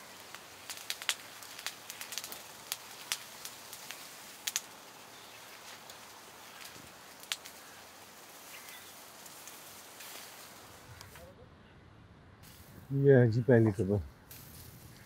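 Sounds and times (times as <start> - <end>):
faint sharp clicks and crackles: 0.0 - 11.2.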